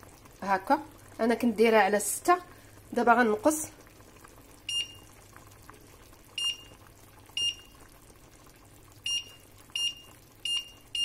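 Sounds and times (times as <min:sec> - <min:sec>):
pot boiling faintly: 0:00.0 - 0:11.0
hob touch control beeps: 0:04.7 - 0:05.0, 0:06.4 - 0:06.7, 0:07.4 - 0:07.7, 0:09.1 - 0:11.0.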